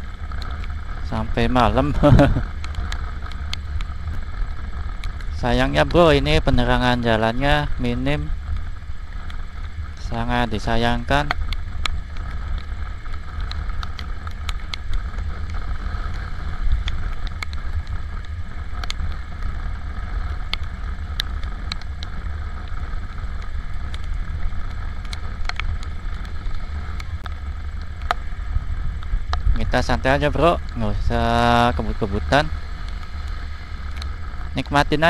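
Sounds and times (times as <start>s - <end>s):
motorcycle engine running: 0.0s - 35.0s
raindrops ticking on camera: 0.0s - 35.0s
wind rumble on microphone: 0.0s - 35.0s.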